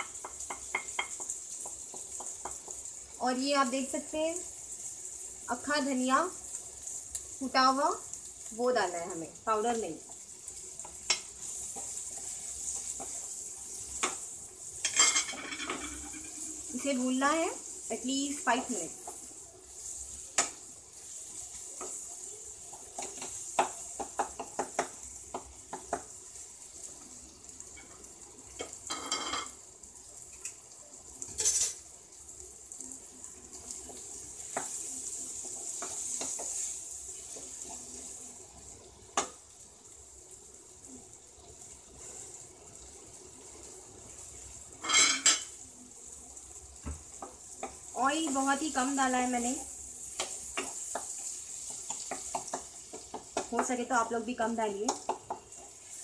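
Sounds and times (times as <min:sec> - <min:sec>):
masala sizzling in a pan: 0:00.0 - 0:56.0
wooden spatula scraping a pan: 0:11.0 - 0:22.0, 0:33.8 - 0:38.2.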